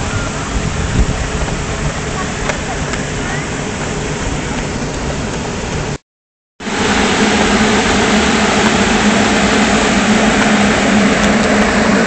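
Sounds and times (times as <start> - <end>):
blower fan rushing air: 0.0 - 6.0, 6.6 - 12.0
low steady hum: 6.6 - 12.0.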